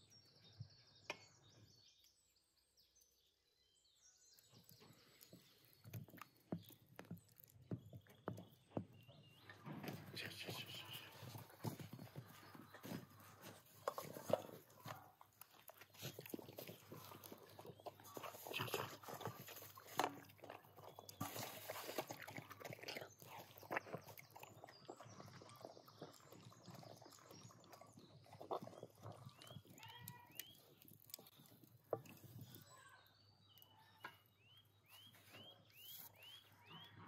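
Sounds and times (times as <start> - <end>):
puppy chewing wetly: 10.9 - 32.6.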